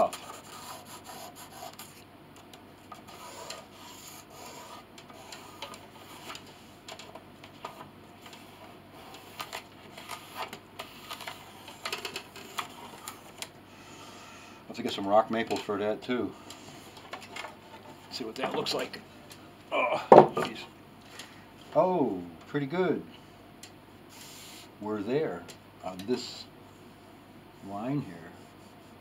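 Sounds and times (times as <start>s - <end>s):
pencil scratching on wood: 0.0s - 2.0s, 2.9s - 6.7s, 28.2s - 29.0s.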